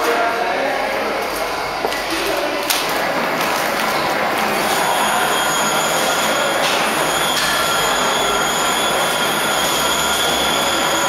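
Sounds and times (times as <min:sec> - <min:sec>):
factory machinery running: 0:00.0 - 0:11.0
high whining tones: 0:00.9 - 0:11.0.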